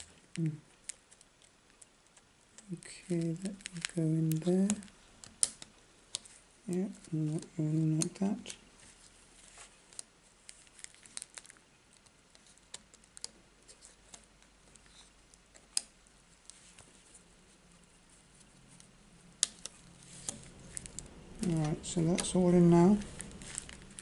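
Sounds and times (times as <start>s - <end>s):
light rustling of plastic sheet: 0.0s - 24.0s
small plastic clicks: 0.3s - 6.3s, 9.9s - 16.0s.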